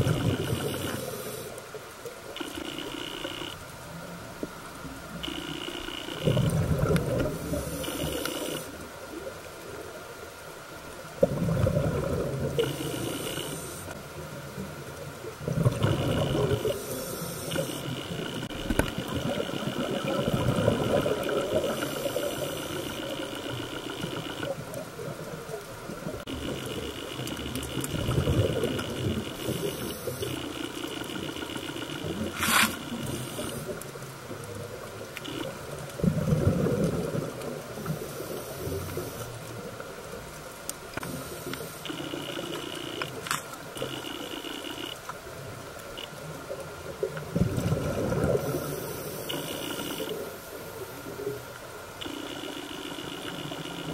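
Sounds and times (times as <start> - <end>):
diver regulator breathing: 0.0 - 1.6, 7.2 - 8.8, 12.5 - 14.0, 15.8 - 24.5, 27.5 - 33.8, 37.8 - 39.4, 41.0 - 43.0, 48.3 - 51.2
steady hiss: 0.0 - 11.2, 12.4 - 36.0, 37.0 - 47.0, 48.4 - 53.9
exhaled bubbles rumbling: 6.2 - 7.7, 11.1 - 12.8, 15.2 - 16.8, 18.2 - 22.4, 27.4 - 29.7, 35.6 - 38.0, 46.9 - 48.7.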